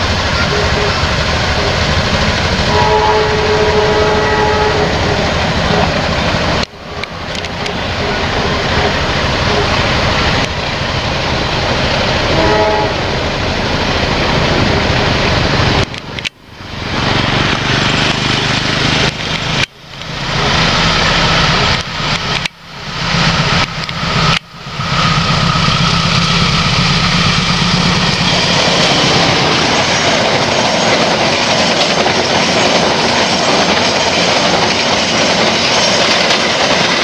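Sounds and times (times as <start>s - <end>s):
steady loud noise: 0.0s - 37.0s
train horn blasts: 0.4s - 2.0s, 2.7s - 6.0s, 12.3s - 13.2s.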